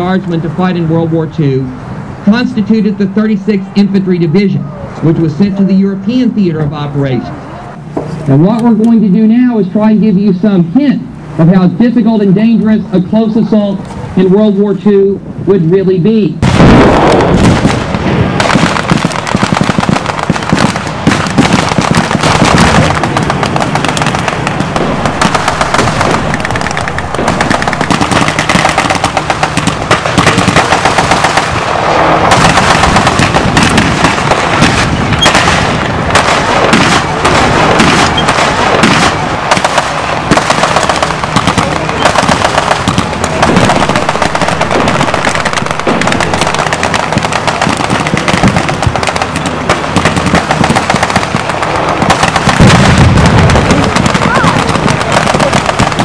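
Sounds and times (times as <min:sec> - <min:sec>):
machine-gun and rifle fire: 0:16.4 - 0:56.0.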